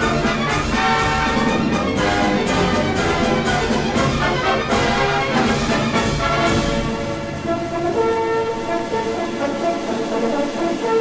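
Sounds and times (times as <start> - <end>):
brass playing chords: 0.0 - 11.0
orchestral music: 0.0 - 11.0.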